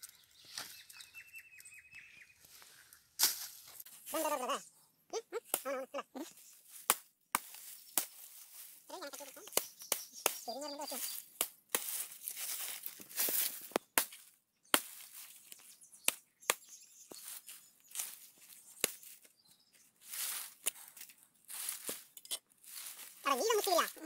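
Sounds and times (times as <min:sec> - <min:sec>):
machete chopping: 0:03.2 - 0:03.6, 0:06.7 - 0:08.3, 0:09.5 - 0:10.5, 0:11.3 - 0:12.1, 0:14.0 - 0:15.3.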